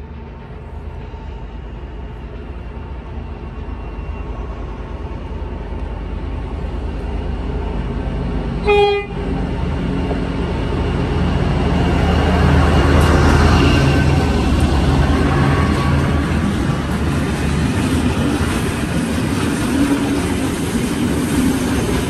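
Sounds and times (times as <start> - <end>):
locomotive engine rumbling: 0.0 - 22.0
train horn toot: 8.6 - 9.3.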